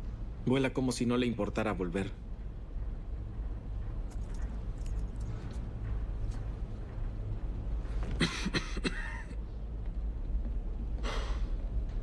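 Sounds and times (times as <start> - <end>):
low hum: 0.0 - 12.0
man coughing: 8.1 - 9.4
sharp breath out: 11.0 - 11.6.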